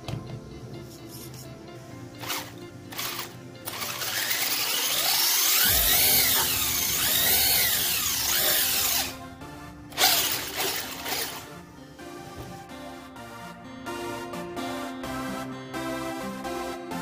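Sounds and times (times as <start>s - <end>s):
background music: 0.0s - 17.0s
electric motor whine: 2.2s - 9.2s, 9.9s - 11.6s.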